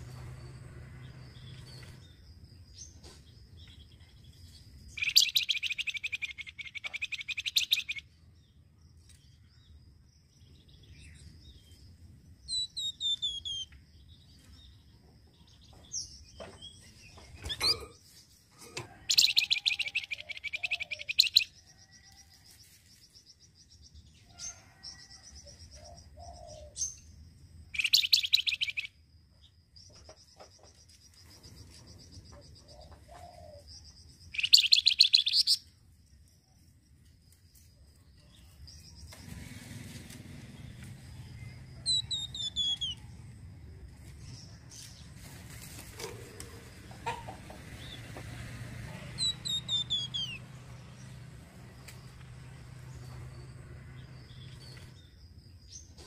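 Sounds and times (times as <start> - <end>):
songbird jingling trill: 4.7 - 8.1, 19.1 - 22.0, 27.7 - 28.9, 34.2 - 35.6
other birds whistling: 5.0 - 8.0, 19.1 - 21.5, 27.8 - 28.9, 34.4 - 35.6, 49.2 - 50.4.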